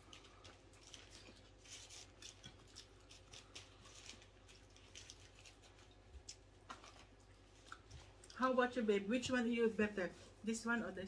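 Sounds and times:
crunching of crispy food being eaten: 0.0s - 8.4s.

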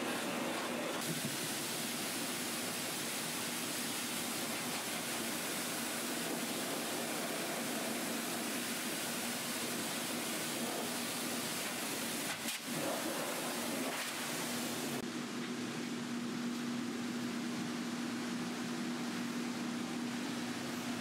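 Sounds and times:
pet dryer air rushing: 0.0s - 15.0s.

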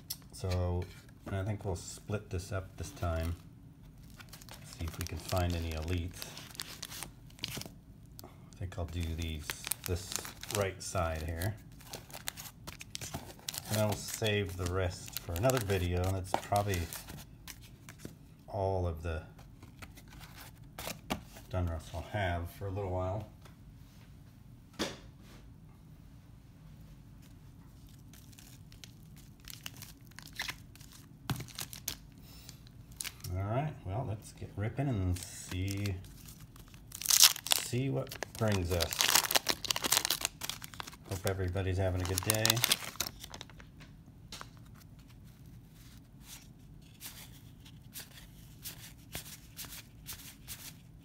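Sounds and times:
faint room hum: 0.0s - 51.0s
card packs crinkling and clicking: 2.8s - 3.4s, 4.0s - 18.2s, 19.4s - 21.5s, 27.8s - 33.4s, 35.0s - 50.8s.

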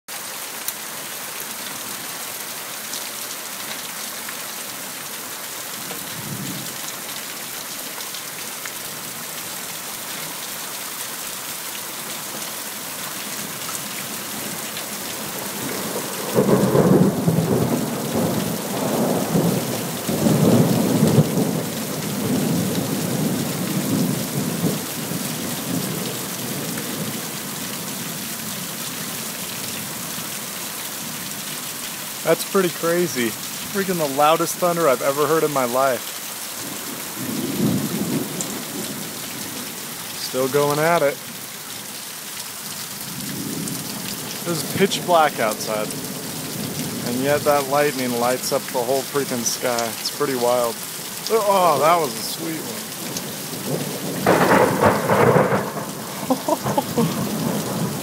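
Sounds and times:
heavy rain hissing: 0.4s - 58.0s
close thunderclap rumbling: 15.2s - 27.1s, 36.6s - 38.9s, 53.0s - 58.0s.

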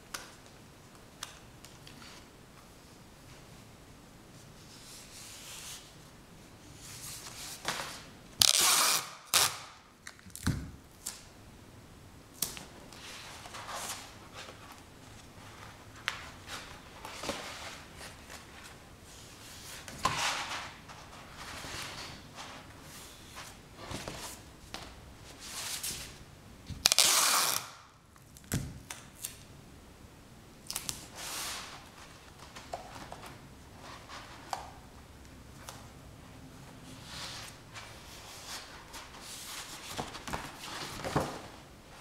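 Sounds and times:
rustling and scraping handling noise: 12.9s - 26.2s, 31.0s - 34.8s, 36.6s - 42.0s.

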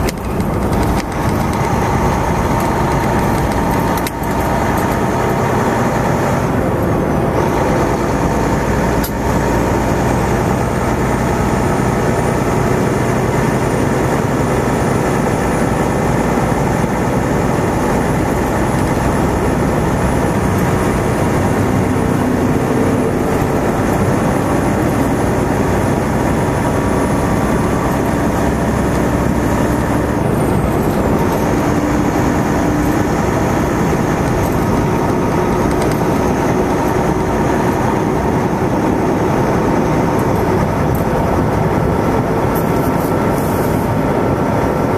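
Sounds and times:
road noise: 0.0s - 44.9s
truck engine drone: 0.0s - 44.9s.

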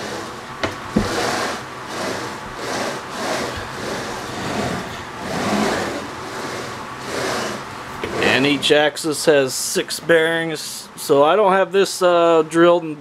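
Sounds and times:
knock: 0.6s - 1.2s
carriage rolling on steel rails: 0.9s - 8.7s.

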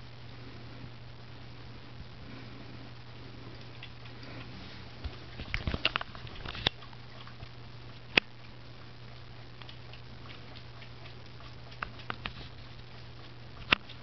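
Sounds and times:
steady low hum: 0.0s - 14.0s
cat licking wet clicks: 3.6s - 4.5s, 9.5s - 14.0s.

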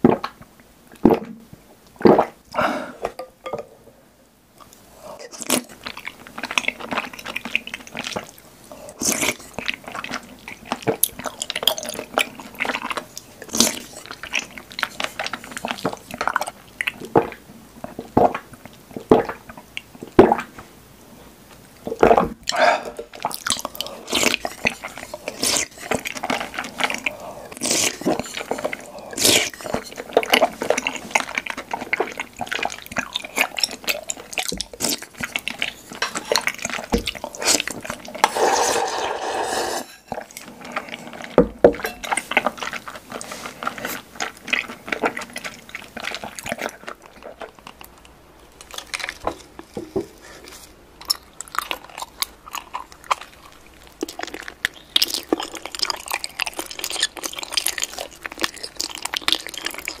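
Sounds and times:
slurping liquid: 22.5s - 48.0s
wet chewing mouth clicks: 50.4s - 60.0s.

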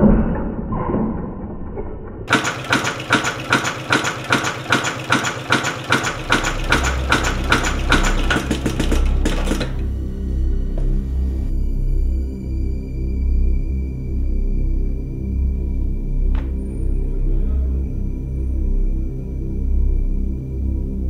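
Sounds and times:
sewing machine stitching leather: 2.3s - 9.9s
low pulsing music bass: 6.5s - 21.0s.

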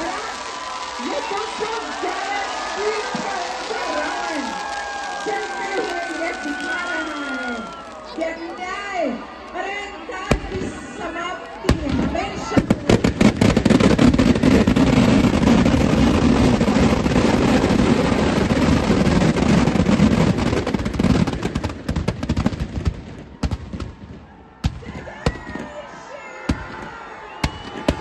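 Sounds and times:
firecrackers banging and crackling: 0.0s - 8.6s, 10.2s - 25.8s, 26.4s - 28.0s.

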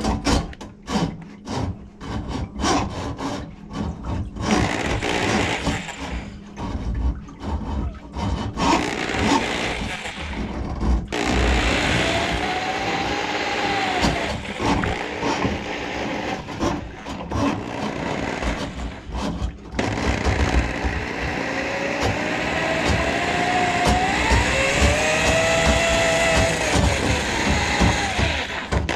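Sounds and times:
drain auger motor whining: 11.1s - 19.1s, 19.8s - 28.9s.

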